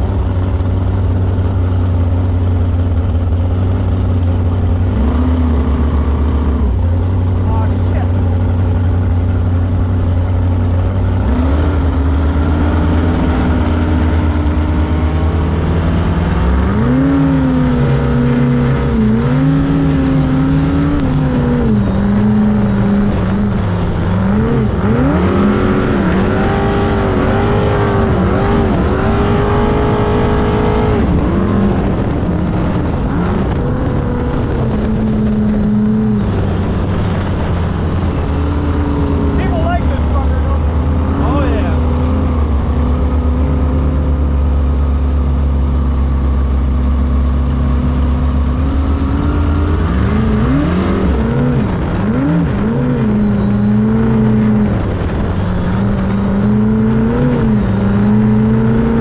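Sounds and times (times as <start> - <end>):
boat engine running: 0.0 - 59.0
rush of wind and water: 20.1 - 59.0.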